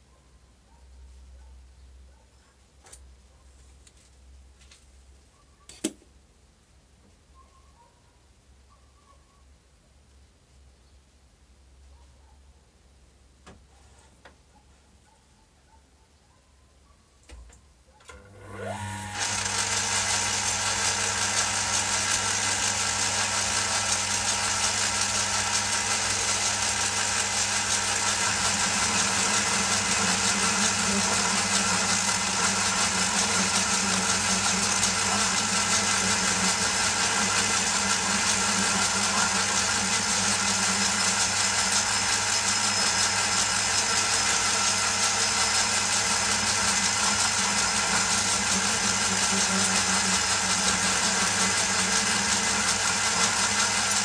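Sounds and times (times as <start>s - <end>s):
lathe running hum: 18.2s - 54.0s.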